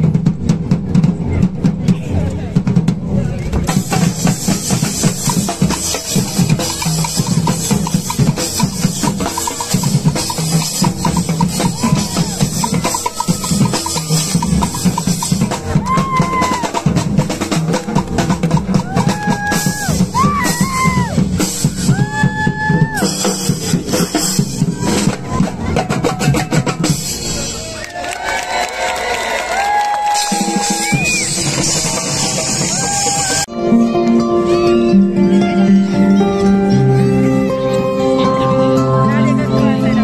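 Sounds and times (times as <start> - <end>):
drums and cymbals playing: 0.0 - 27.8, 29.5 - 33.5
high held notes: 3.9 - 16.8, 30.3 - 40.0.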